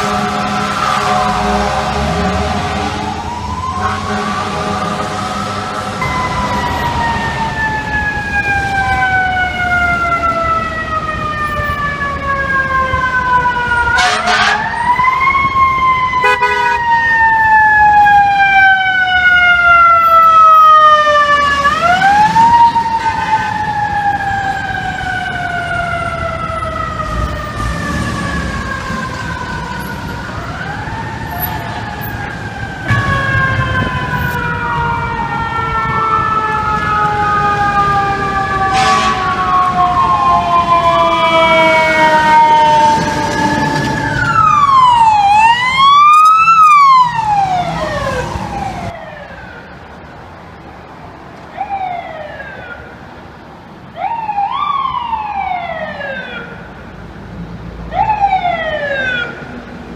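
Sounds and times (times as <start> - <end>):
second siren: 0.0 - 49.9, 54.0 - 56.7
fire engine siren wailing: 0.0 - 50.7, 51.4 - 59.9
traffic noise: 0.0 - 59.9.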